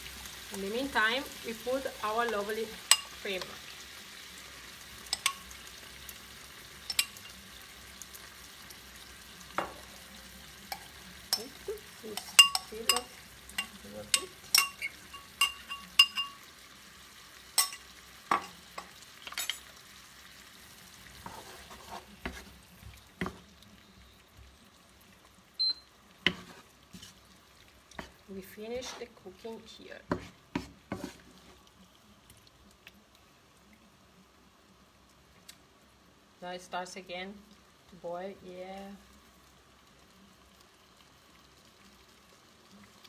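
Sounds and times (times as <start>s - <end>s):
sauce sizzling: 0.0s - 43.0s
utensil clinking against pan: 12.2s - 16.4s.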